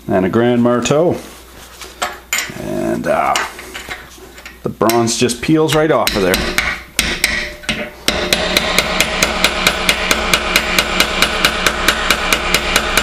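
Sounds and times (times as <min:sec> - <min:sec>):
hammer striking metal chisel: 0:05.7 - 0:13.0.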